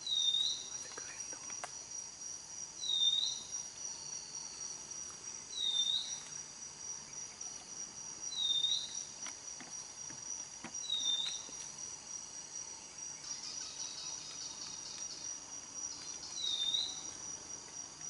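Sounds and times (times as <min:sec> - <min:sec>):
high-pitched insect drone: 0:00.0 - 0:18.0.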